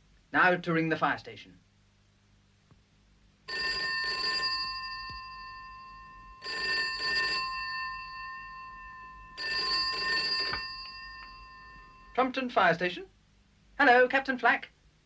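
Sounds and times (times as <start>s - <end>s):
telephone bell ringing: 3.5s - 12.2s.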